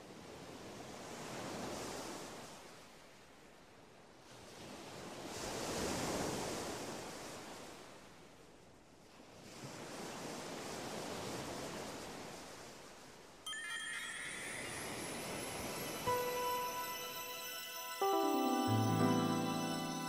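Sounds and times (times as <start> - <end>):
ocean waves washing: 13.5 - 20.0.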